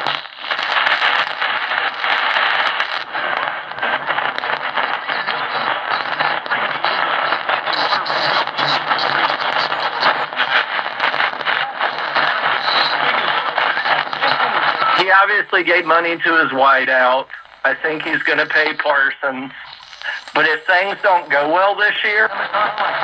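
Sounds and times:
garbled radio talk: 0.0s - 23.0s
radio hiss and crackle: 0.0s - 23.0s.

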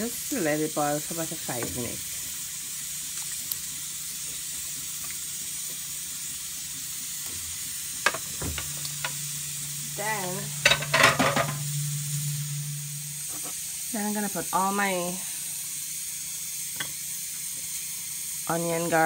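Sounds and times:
pot of water hissing: 0.0s - 19.0s
plate and pot clattering: 10.6s - 11.7s.

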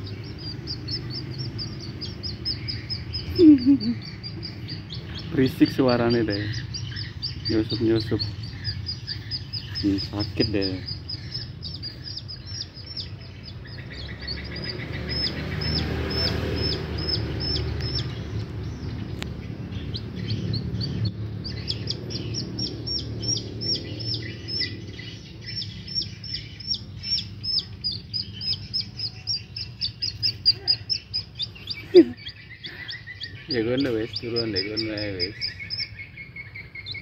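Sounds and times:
baby chick peeping: 0.0s - 37.0s.

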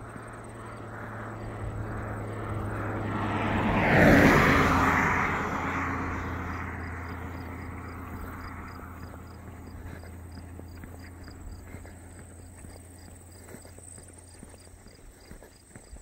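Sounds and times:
car driving past: 0.0s - 14.9s.

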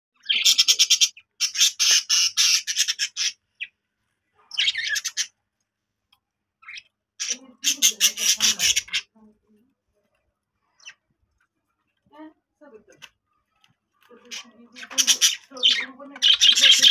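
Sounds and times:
bird chicks squawking: 0.2s - 3.8s, 4.4s - 5.4s, 6.6s - 9.2s, 13.4s - 16.9s.

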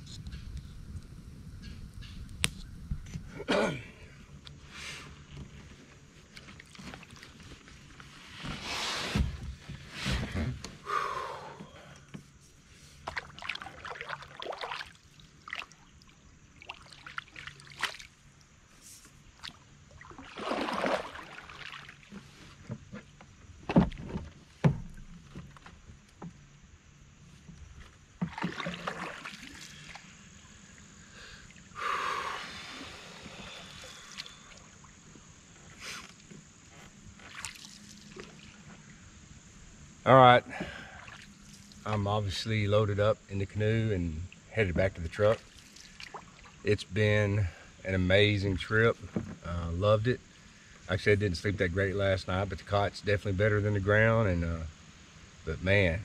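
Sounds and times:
paddle splashing through water: 12.9s - 18.4s, 19.2s - 23.1s, 28.1s - 30.2s, 37.1s - 38.7s, 40.6s - 41.9s, 45.3s - 46.6s.

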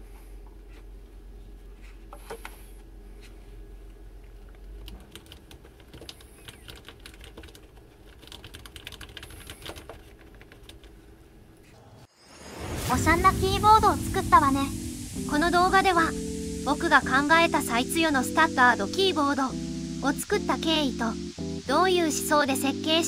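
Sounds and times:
keyboard keystroke clatter: 4.8s - 11.0s.

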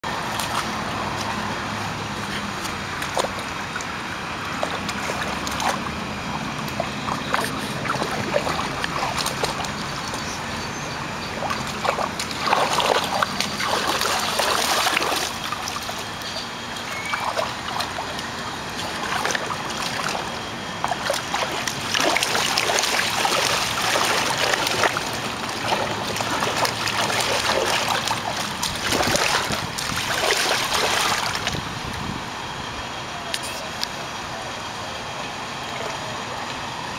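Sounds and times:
dog splashing water: 2.2s - 10.6s, 11.2s - 31.6s.

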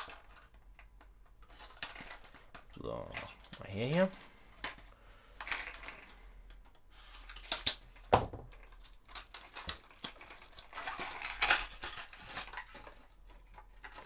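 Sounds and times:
plastic packaging crinkling: 8.6s - 14.0s.

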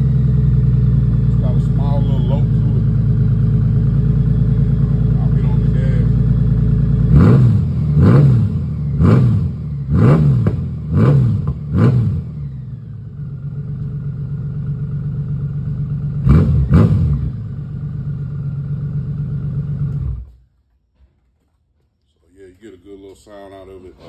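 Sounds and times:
motorcycle engine revving and idling: 0.0s - 20.4s.

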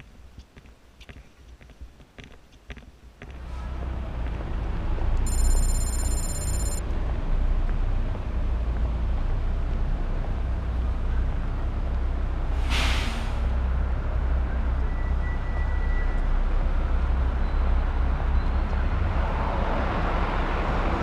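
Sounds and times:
street noise: 0.0s - 21.0s
short hiss: 12.6s - 13.5s.

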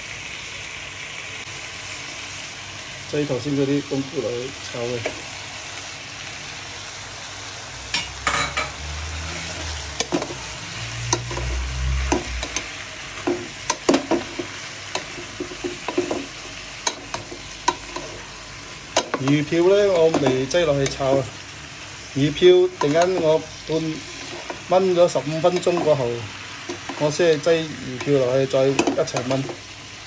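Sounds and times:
mushrooms and pork sizzling: 0.0s - 30.0s
wooden spatula scraping a pot: 9.4s - 18.4s, 22.8s - 28.2s.

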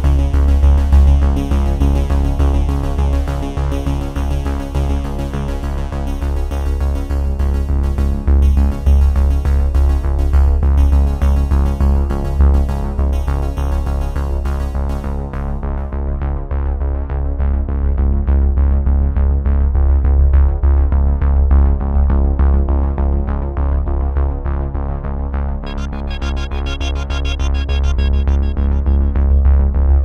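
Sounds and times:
electronic synthesizer music: 25.6s - 30.0s.

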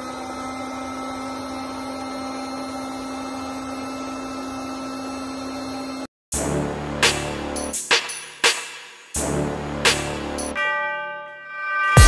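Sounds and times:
electric air pump running: 0.0s - 6.1s.

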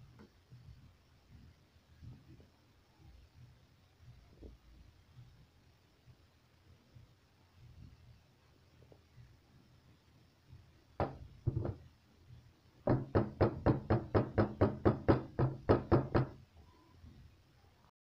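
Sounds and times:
baking pan knocking on table: 11.0s - 11.8s.

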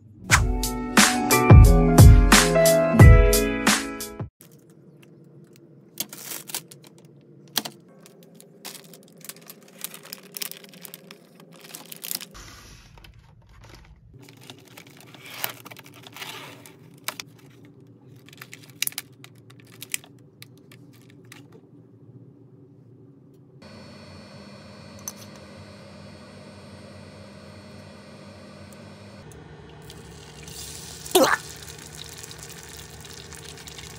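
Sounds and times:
plastic packaging rustling: 4.4s - 12.4s, 13.0s - 21.6s.

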